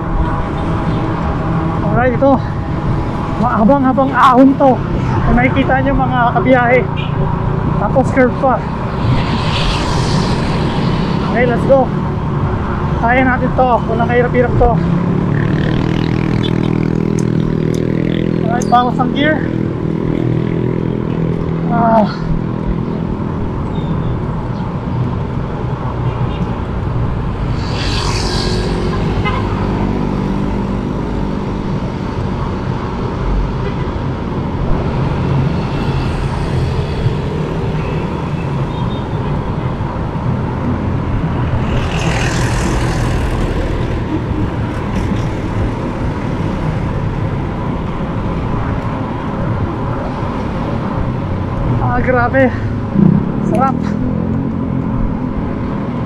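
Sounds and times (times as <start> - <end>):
wind rumbling on microphone: 0.0 - 13.6, 19.6 - 56.0
street traffic: 0.0 - 56.0
hissing swells: 8.4 - 13.0, 27.2 - 29.6.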